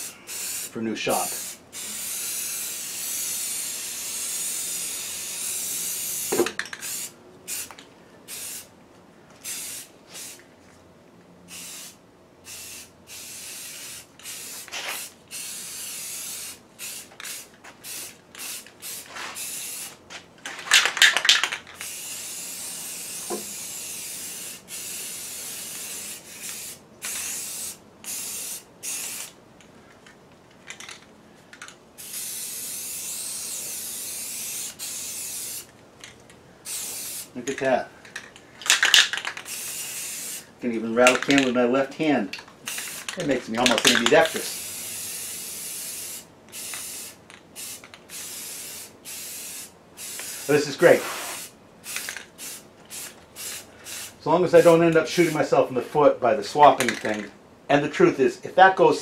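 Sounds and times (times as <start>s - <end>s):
spray can hissing: 0.0s - 8.7s, 9.4s - 10.4s, 11.5s - 20.0s, 20.7s - 29.4s, 32.0s - 35.7s, 36.6s - 37.3s, 38.7s - 40.4s, 42.6s - 55.4s
spray can rattle: 0.3s - 8.7s, 12.5s - 29.4s, 30.6s - 40.4s, 41.0s - 41.6s, 42.4s - 55.4s, 56.7s - 57.3s.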